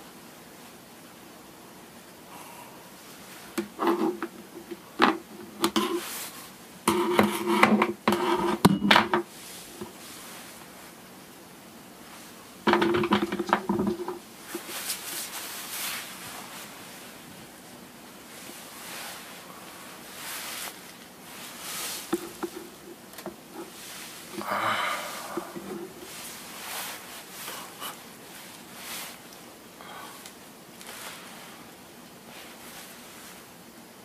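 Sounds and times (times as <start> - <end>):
small objects clattering on a desk: 3.6 - 6.0, 6.9 - 9.3, 12.6 - 14.8
faint rustle: 13.8 - 33.7.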